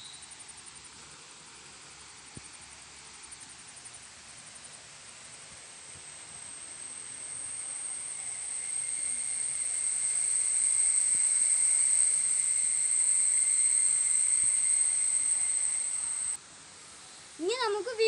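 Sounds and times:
shrill insect drone: 6.1 - 16.4.

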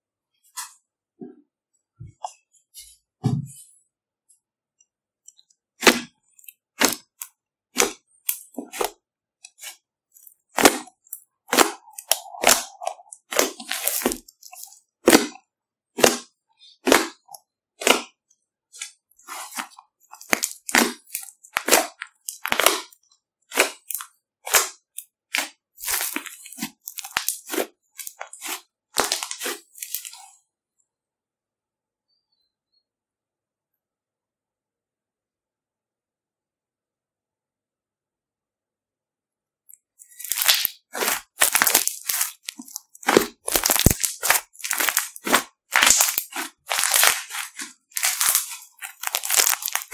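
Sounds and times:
slime popping and crackling: 10.5 - 15.4, 16.0 - 18.1, 19.3 - 30.2, 40.0 - 49.9.

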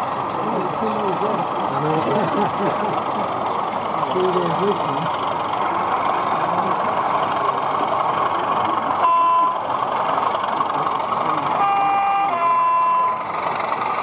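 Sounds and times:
crowd hubbub: 0.0 - 14.0
model locomotive horn: 9.0 - 9.6, 11.5 - 13.2.

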